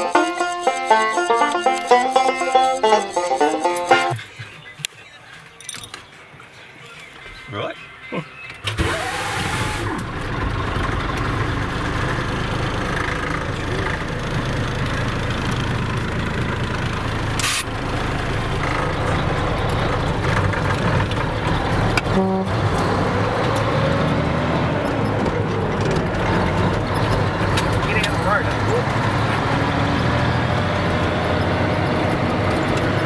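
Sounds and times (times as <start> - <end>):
truck diesel engine running: 0.0 - 4.6, 8.6 - 33.0
brief hiss: 17.4 - 17.7.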